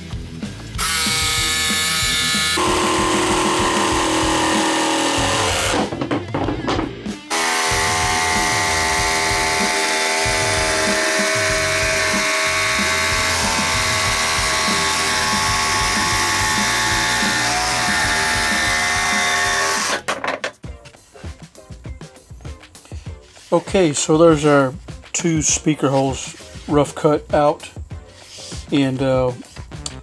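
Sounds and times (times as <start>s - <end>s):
jigsaw cutting a board: 0.8s - 5.9s, 7.3s - 20.1s.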